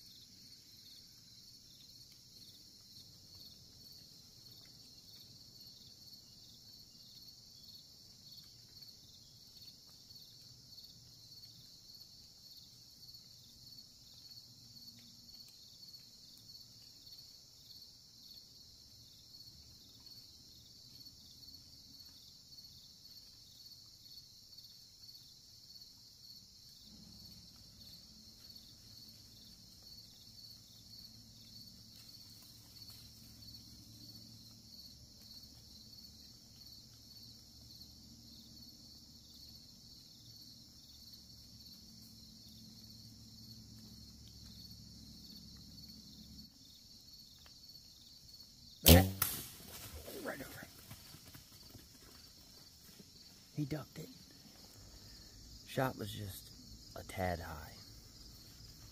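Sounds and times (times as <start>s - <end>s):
insects trilling: 0.0s - 58.9s.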